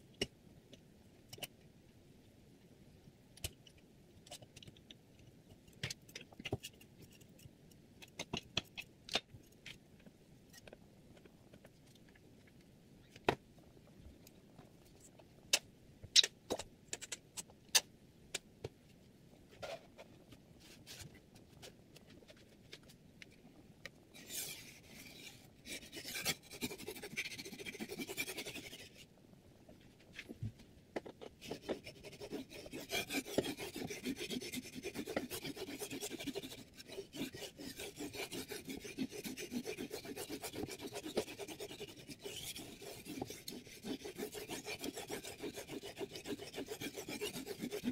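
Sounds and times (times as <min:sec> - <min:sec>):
knife scraping on whetstone: 0:24.2 - 0:29.0, 0:31.4 - 0:47.9.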